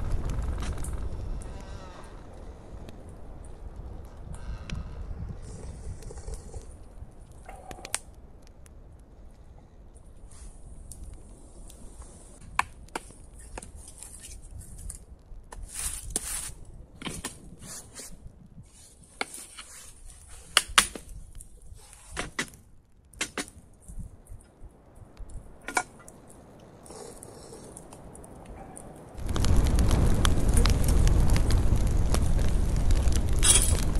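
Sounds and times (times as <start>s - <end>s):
campfire crackling and popping: 0.0s - 33.9s
fire hissing: 5.0s - 14.8s, 15.5s - 16.6s, 17.5s - 22.2s, 26.1s - 33.9s.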